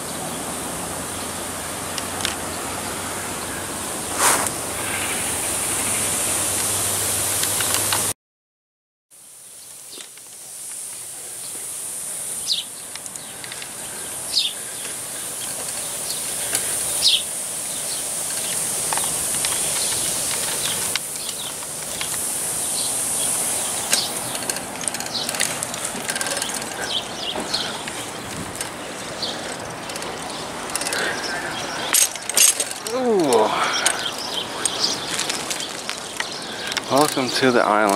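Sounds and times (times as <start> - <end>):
steady high-pitched hiss: 0.0 - 8.1, 9.2 - 37.9
bird chirps: 12.4 - 37.7.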